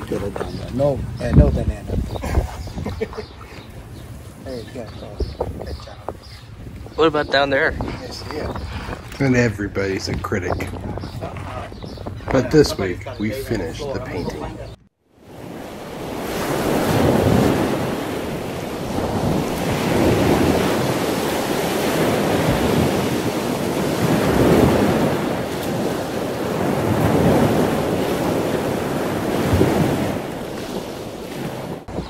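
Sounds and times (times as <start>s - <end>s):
surf breaking over rocks: 15.3s - 32.0s.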